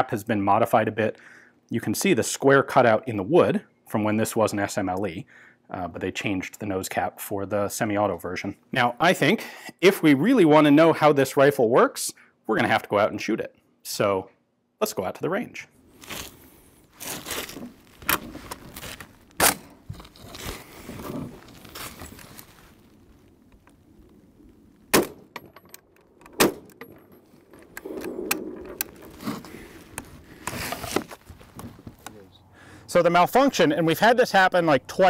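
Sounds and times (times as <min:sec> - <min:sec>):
rifle shots: 0:24.9 - 0:25.4, 0:26.4 - 0:26.8, 0:27.8 - 0:28.9.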